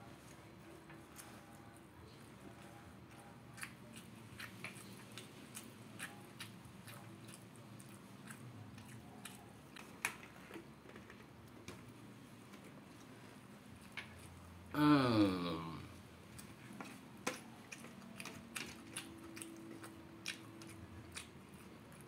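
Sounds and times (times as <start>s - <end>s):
person chewing crispy food: 1.0s - 10.8s, 16.2s - 22.0s.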